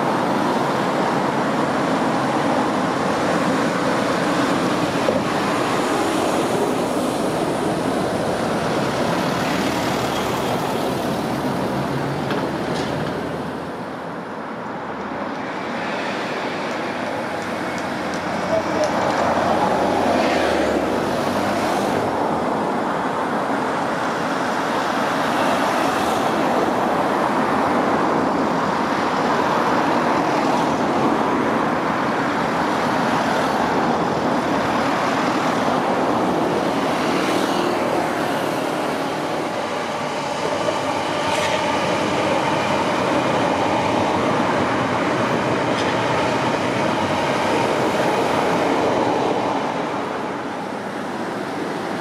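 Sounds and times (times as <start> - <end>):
electric train passing: 0.0 - 52.0
faint clicks of wheels on rail: 12.2 - 13.2, 16.6 - 19.3, 41.3 - 41.7, 45.7 - 46.1.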